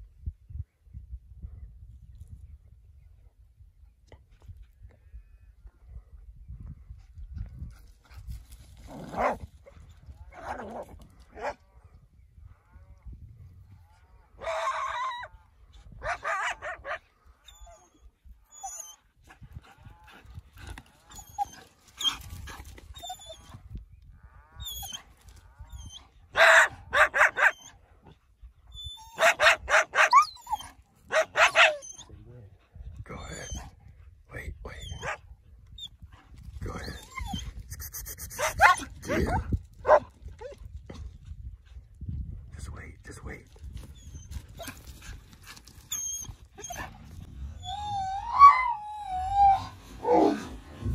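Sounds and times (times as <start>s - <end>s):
dogs barking: 16.0s - 17.0s, 26.3s - 27.8s, 29.2s - 32.0s, 38.3s - 40.1s.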